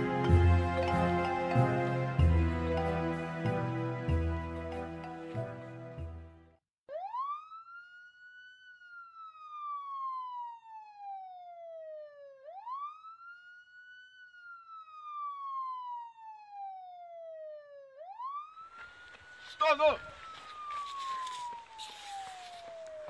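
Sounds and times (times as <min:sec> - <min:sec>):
police siren wailing: 0:06.9 - 0:23.0.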